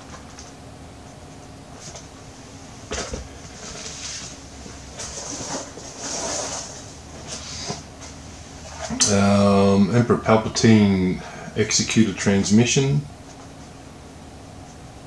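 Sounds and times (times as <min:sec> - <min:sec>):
cardboard and plastic packaging rustling: 0:02.9 - 0:08.2.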